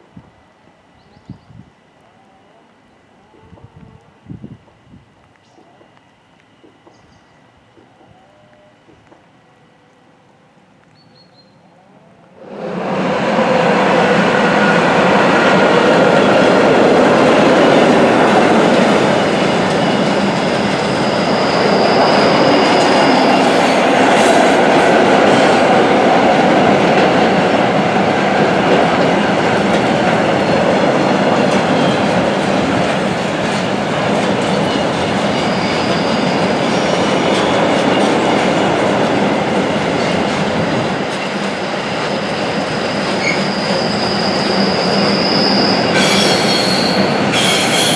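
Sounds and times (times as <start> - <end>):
train wheels rumbling on rail: 12.4 - 47.9
high wheel squeal: 19.2 - 24.0, 34.7 - 37.0, 42.8 - 47.9
clickety-clack over rail joints: 28.3 - 35.3, 37.3 - 42.2.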